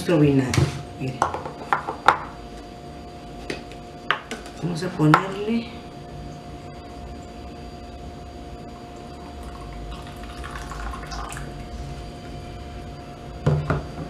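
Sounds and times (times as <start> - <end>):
liquid trickling into cup: 8.8 - 11.8.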